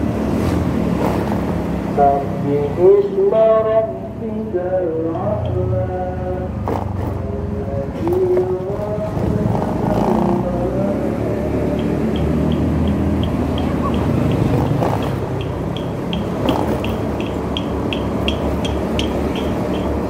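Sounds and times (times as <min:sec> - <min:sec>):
motorcycle engine and road rumble: 0:00.0 - 0:20.0
person chanting: 0:02.0 - 0:06.6, 0:07.3 - 0:15.2.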